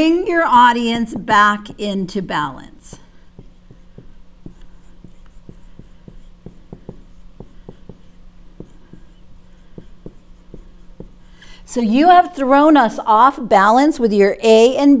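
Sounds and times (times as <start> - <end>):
steady low hum: 0.0 - 15.0
marker writing on whiteboard: 2.9 - 11.4.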